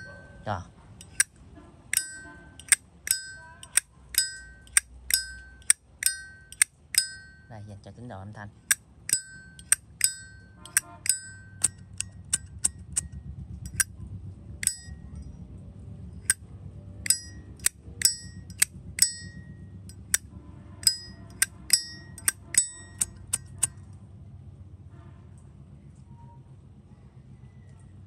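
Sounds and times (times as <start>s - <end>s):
metal lighter case ringing: 0.0s - 0.3s, 1.0s - 7.6s, 8.7s - 13.9s, 14.6s - 15.4s, 16.2s - 16.4s, 17.0s - 23.8s.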